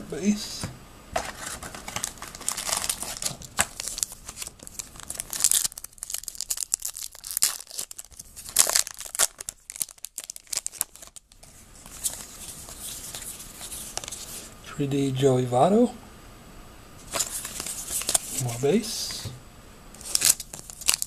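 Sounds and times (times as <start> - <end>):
baseball cards being flipped through: 1.2 - 5.7, 17.0 - 19.3, 20.0 - 21.0.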